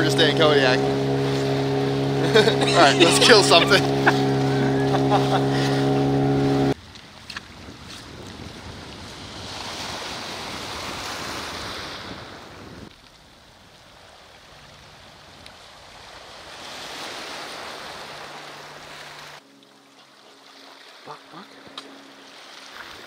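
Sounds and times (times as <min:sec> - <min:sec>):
wind on the microphone: 0:06.8 - 0:13.8
small waves on a pebble beach: 0:06.8 - 0:19.4.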